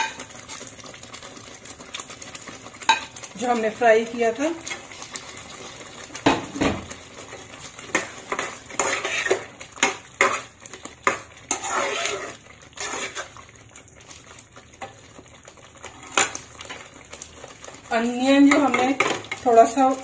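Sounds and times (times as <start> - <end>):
spoon knocking and scraping metal pot: 0.0 - 0.3, 2.8 - 3.2, 7.8 - 13.3, 18.4 - 19.6.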